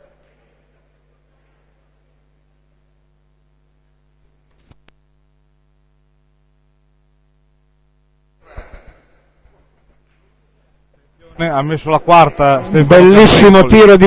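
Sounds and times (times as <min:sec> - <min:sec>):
low room hum: 0:00.0 - 0:14.0.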